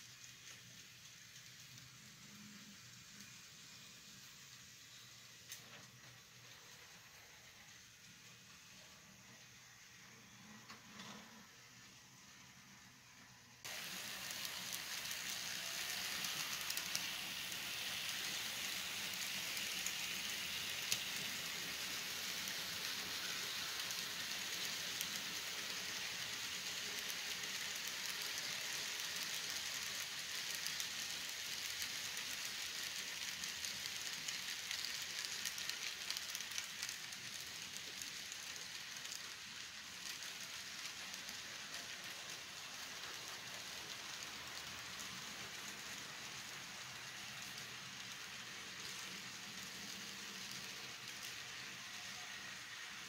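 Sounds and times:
model train wheels rattling: 0:13.6 - 0:53.0.

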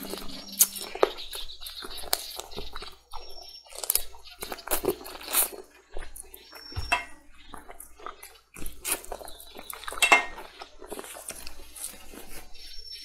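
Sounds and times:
biting and chewing meat: 0:00.0 - 0:13.0
utensils clinking against dish: 0:06.8 - 0:07.3, 0:09.8 - 0:10.6.

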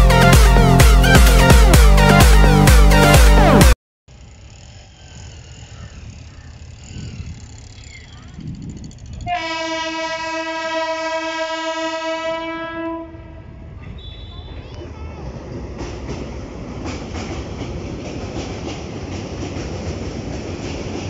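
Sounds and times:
train rumbling: 0:00.0 - 0:21.0
train horn blast: 0:09.2 - 0:14.6.

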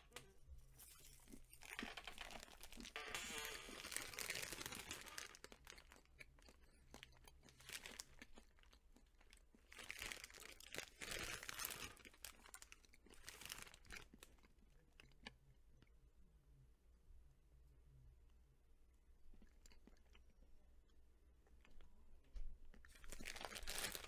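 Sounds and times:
plastic candy bag crinkling: 0:00.7 - 0:15.1, 0:22.7 - 0:24.0.

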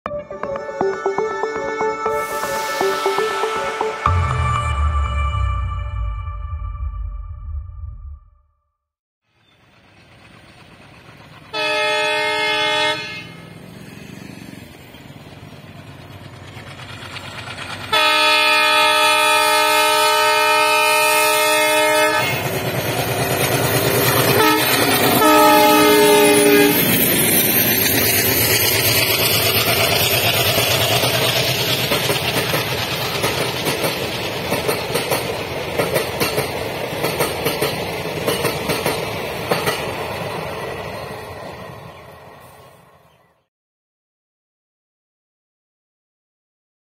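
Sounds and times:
locomotive horn blasts: 0:11.6 - 0:13.5, 0:17.9 - 0:22.5, 0:24.4 - 0:26.9
train wheels clickety-clack: 0:13.8 - 0:19.0, 0:22.1 - 0:41.1.

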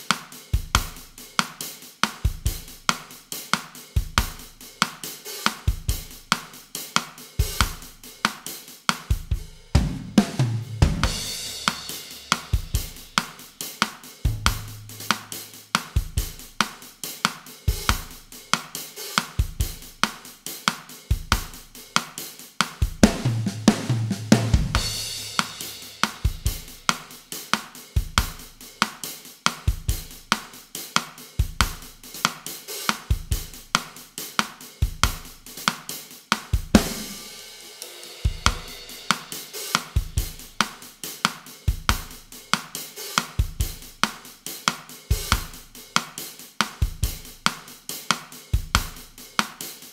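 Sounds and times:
drum kit bossa nova groove: 0:00.0 - 0:49.9
cymbal crash: 0:11.0 - 0:13.2, 0:14.3 - 0:16.3.

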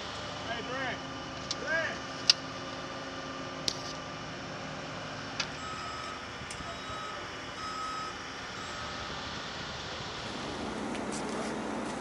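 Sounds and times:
reversing alarm beeping: 0:05.5 - 0:09.5.

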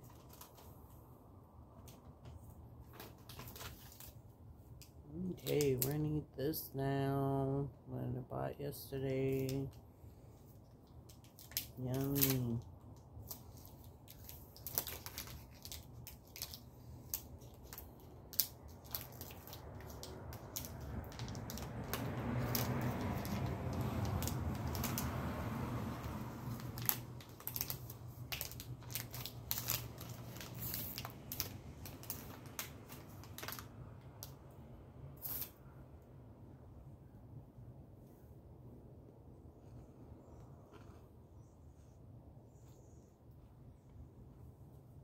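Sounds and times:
foil wrapper crinkling and tearing: 0:02.8 - 0:04.3, 0:11.0 - 0:25.2, 0:26.0 - 0:34.4, 0:35.2 - 0:35.5.

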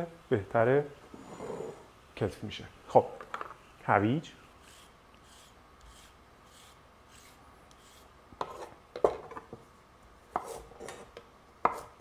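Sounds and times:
vegetable peeler scraping carrot: 0:04.6 - 0:08.7
knife chopping on wooden board: 0:11.6 - 0:11.9.

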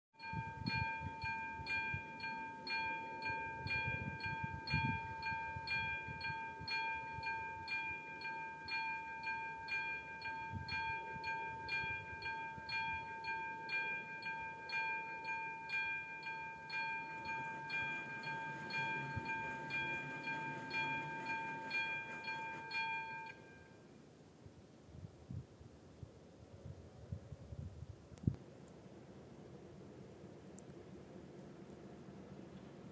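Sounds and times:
level crossing warning bell: 0:00.2 - 0:24.0.

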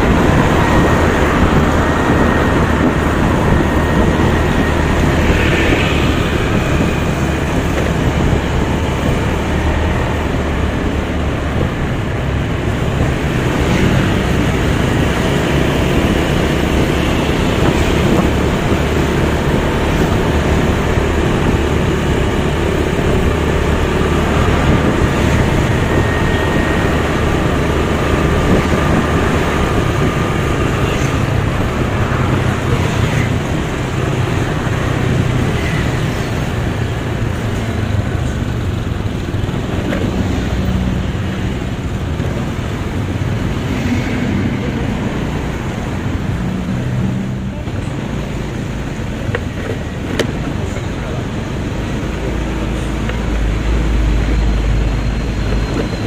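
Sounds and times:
wind rushing: 0:00.0 - 0:37.6
passing traffic: 0:00.0 - 0:56.0.

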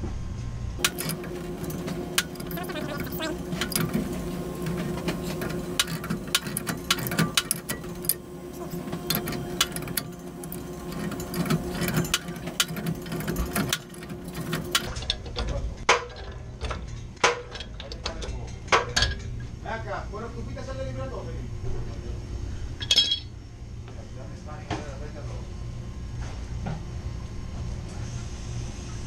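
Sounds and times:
steady hum: 0:00.0 - 0:15.0
wrench clicking and scraping metal: 0:00.8 - 0:15.2.

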